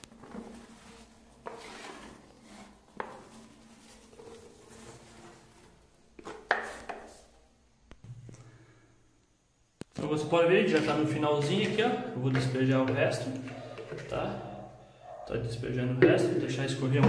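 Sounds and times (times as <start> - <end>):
trowel scraping across floor: 0.0 - 7.4.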